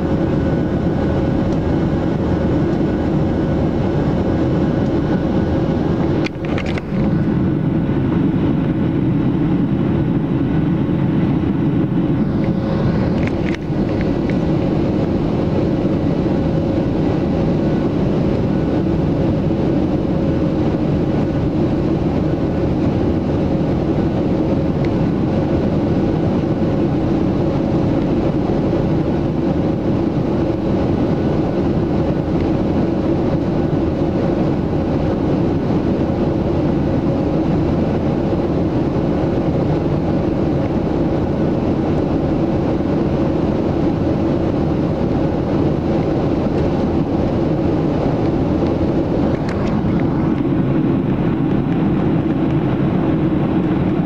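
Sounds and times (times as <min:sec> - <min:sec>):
jet engines droning: 0:00.0 - 0:54.0
rushing airflow: 0:00.0 - 0:54.0.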